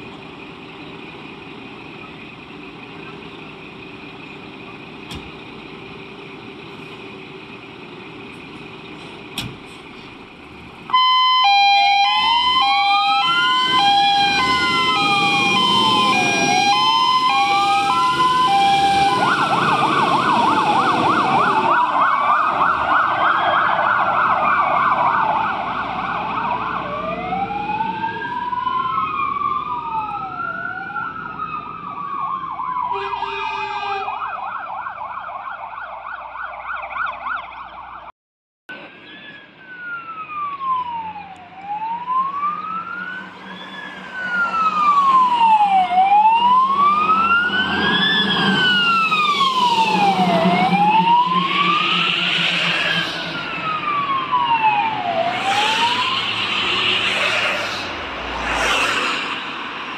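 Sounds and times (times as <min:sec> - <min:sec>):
diesel engine idling: 0:00.0 - 0:19.9
electronic sirens: 0:10.9 - 0:38.1, 0:39.2 - 0:59.9.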